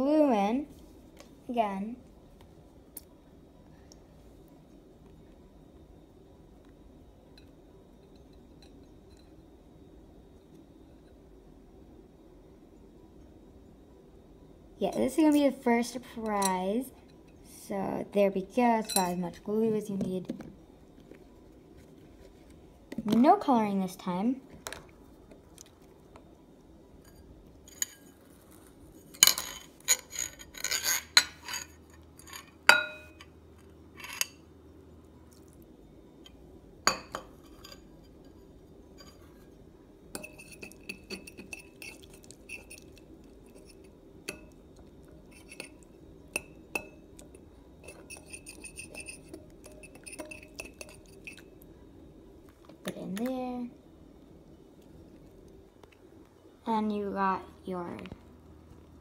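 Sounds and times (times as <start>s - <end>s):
utensil clinking against glass bowl: 47.8s - 51.5s.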